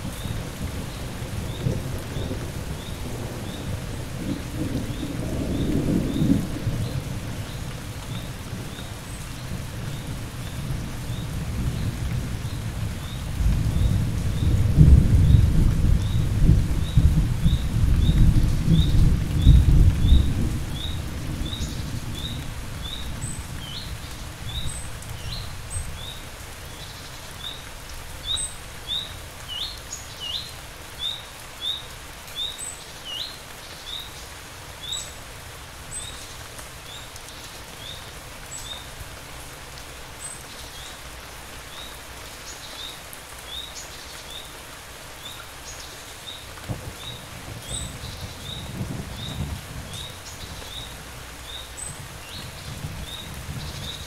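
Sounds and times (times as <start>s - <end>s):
low thunder rumble: 0.0s - 8.8s, 9.5s - 26.1s, 46.6s - 54.0s
steady rain: 0.0s - 54.0s.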